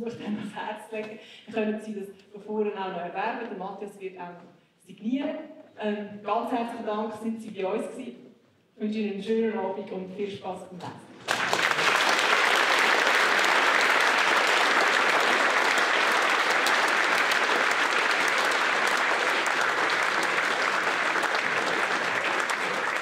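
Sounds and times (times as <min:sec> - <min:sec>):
audience applauding: 0:11.2 - 0:23.0.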